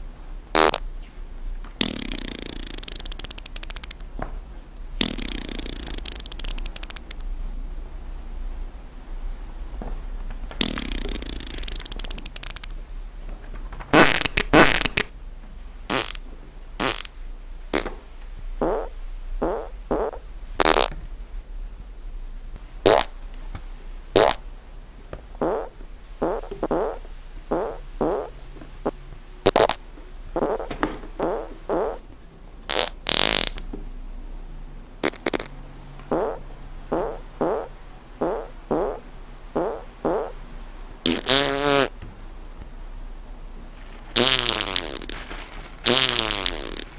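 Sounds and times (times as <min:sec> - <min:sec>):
fart sound effects: 0:00.6 - 0:00.8, 0:01.8 - 0:04.0, 0:05.0 - 0:07.2, 0:10.6 - 0:12.7, 0:13.9 - 0:15.1, 0:15.9 - 0:16.2, 0:16.8 - 0:17.1, 0:17.7 - 0:17.9, 0:18.6 - 0:21.0, 0:22.8 - 0:23.1, 0:24.2 - 0:24.4, 0:25.4 - 0:29.8, 0:30.4 - 0:32.0, 0:32.7 - 0:33.7, 0:35.0 - 0:40.4, 0:41.0 - 0:41.9, 0:44.1 - 0:45.2, 0:45.8 - 0:46.9.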